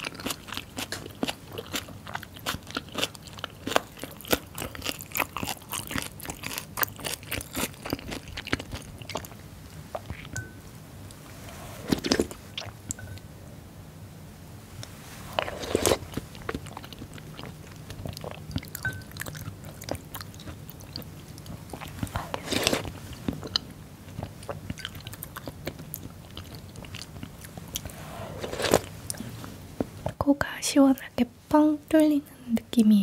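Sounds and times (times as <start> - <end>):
wet crunchy chewing: 0.0 - 10.4, 11.5 - 13.0, 15.3 - 29.3.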